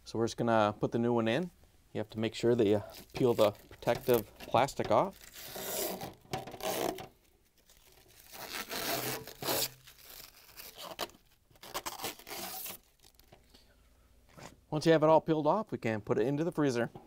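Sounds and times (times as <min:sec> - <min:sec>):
plastic film peeling and crinkling: 0:02.8 - 0:13.4.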